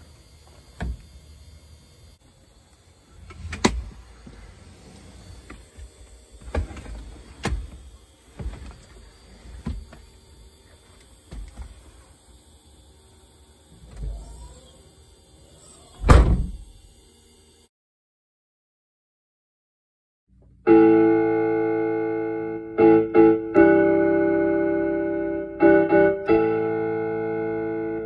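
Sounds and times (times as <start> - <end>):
thumps and knocks inside vehicle: 0.6 - 1.1, 3.2 - 10.2, 11.0 - 12.0.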